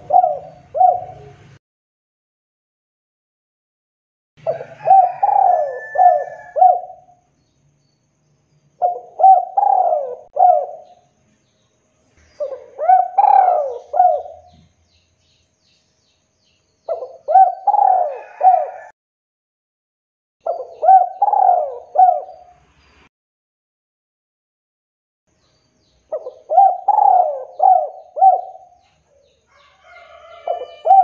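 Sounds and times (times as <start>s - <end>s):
dove cooing: 0.0s - 1.6s, 4.4s - 7.2s, 8.8s - 11.0s, 12.4s - 14.7s, 16.9s - 18.9s, 20.4s - 22.6s, 26.1s - 31.0s.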